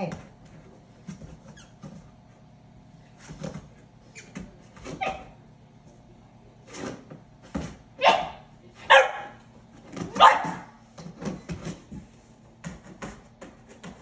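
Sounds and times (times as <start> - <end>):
puppy barking: 8.0 - 9.4, 10.1 - 10.8.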